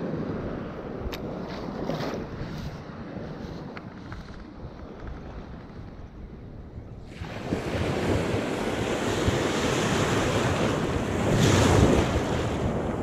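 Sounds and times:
wind buffeting microphone: 0.0s - 13.0s
surf washing over beach: 7.0s - 13.0s.

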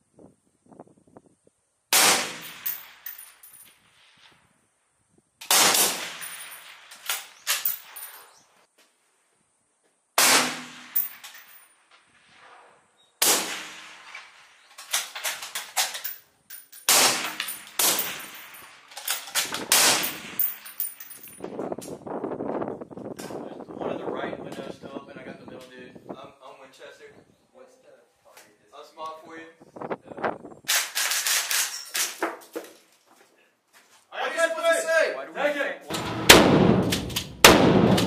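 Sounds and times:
loud sharp bangs: 1.9s - 3.0s, 5.4s - 6.8s, 10.2s - 11.2s, 13.2s - 14.5s, 16.8s - 18.4s, 19.5s - 20.6s, 35.9s - 38.0s.

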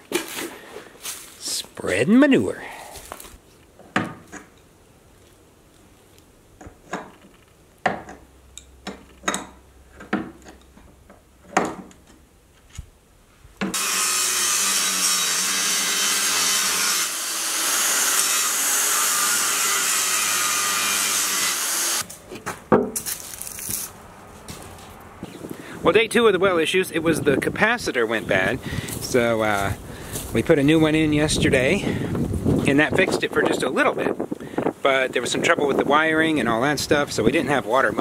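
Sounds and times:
angle grinder grinding steel: 13.7s - 22.1s.

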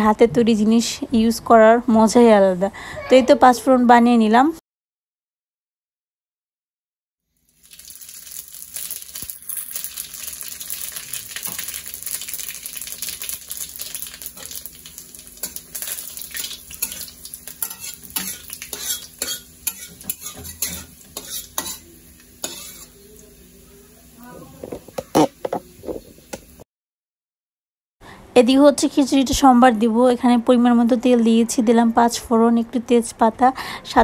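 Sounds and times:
spices sizzling in hot oil: 7.3s - 24.2s, 24.8s - 26.6s
metal spatula scraping pan: 16.8s - 23.0s.

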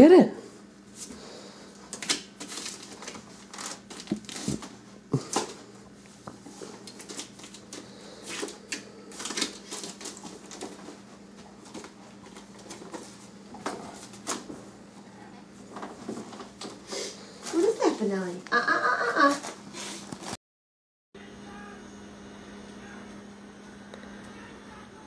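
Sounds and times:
dog tearing wrapping paper: 2.0s - 4.6s.

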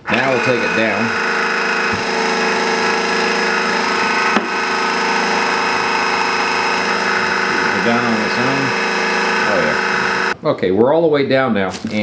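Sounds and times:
electric car jack motor running: 0.0s - 10.4s.

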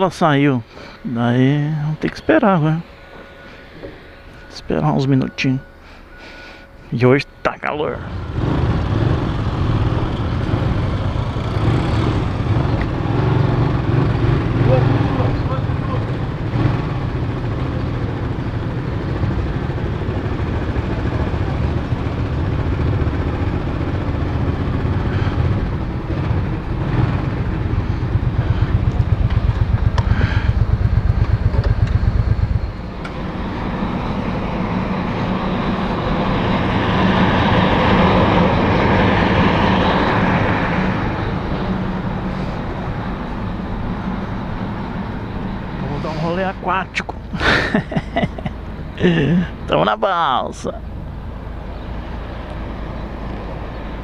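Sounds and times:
steady rushing noise: 0.0s - 47.3s
motorcycle engine pulsing: 8.0s - 34.9s.

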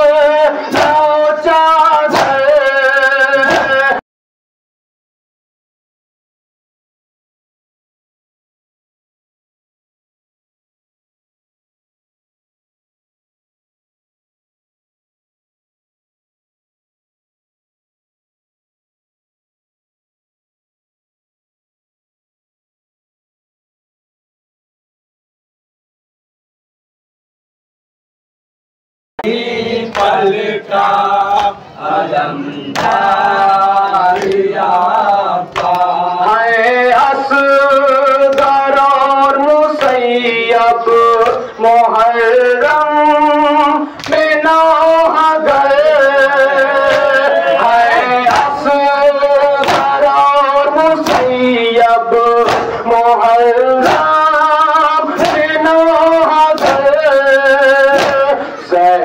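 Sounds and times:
men singing a lament: 0.0s - 4.0s, 29.2s - 59.0s
chest beating slaps: 2.1s - 2.6s, 3.4s - 4.0s, 32.7s - 33.1s, 34.2s - 34.4s, 46.8s - 47.3s, 47.9s - 48.6s, 49.6s - 50.0s, 51.0s - 51.5s, 52.4s - 52.8s, 53.8s - 54.2s, 56.6s - 56.9s, 57.8s - 58.4s.

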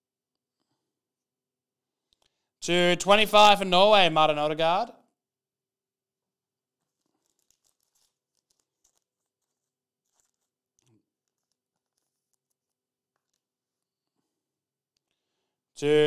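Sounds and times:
trading cards rustling and clicking: 6.8s - 14.4s.

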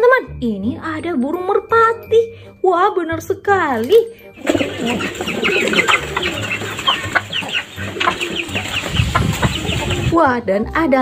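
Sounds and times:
pigeons cooing and calling: 4.4s - 10.2s.

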